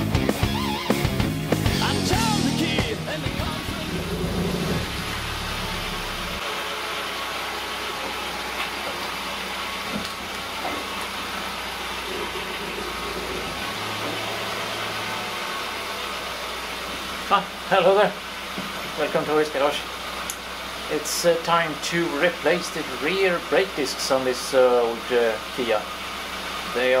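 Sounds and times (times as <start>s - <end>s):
rock music: 0.0s - 5.0s
car engine idling: 0.0s - 27.0s.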